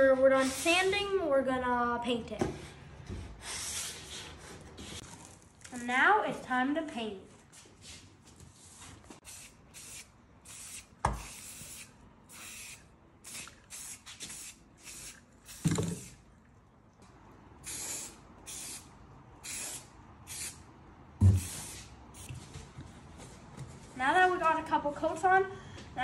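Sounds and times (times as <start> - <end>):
spray paint can hissing: 9.2 - 16.1, 17.6 - 20.6.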